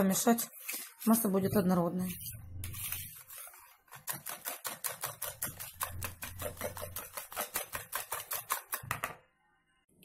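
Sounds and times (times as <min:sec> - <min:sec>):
whisk clicking against bowl: 0:03.9 - 0:09.2.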